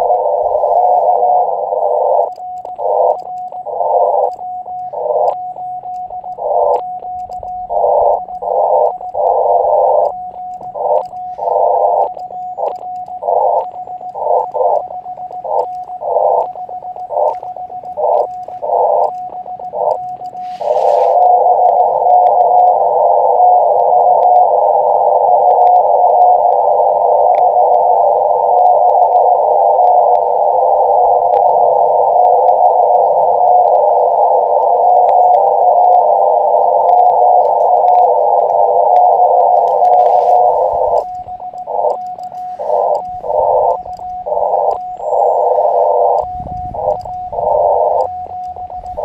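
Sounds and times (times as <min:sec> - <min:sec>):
morse code sidetone beeps: 0:00.0 - 0:49.0
radio receiver hiss: 0:00.0 - 0:49.0.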